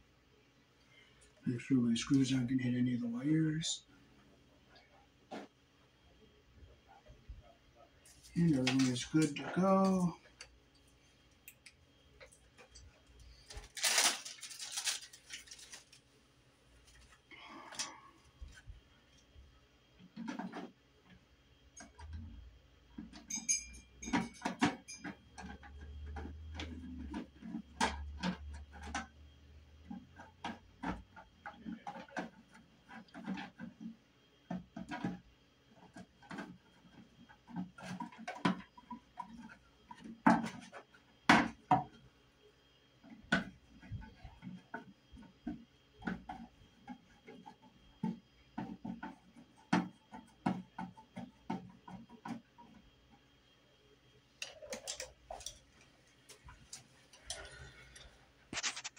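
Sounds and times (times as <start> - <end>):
metal clicks and scrapes: 56.7 - 58.9.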